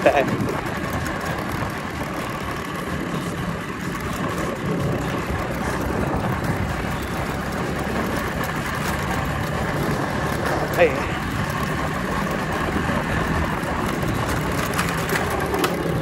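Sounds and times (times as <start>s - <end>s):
scooter engine running: 0.0s - 16.0s.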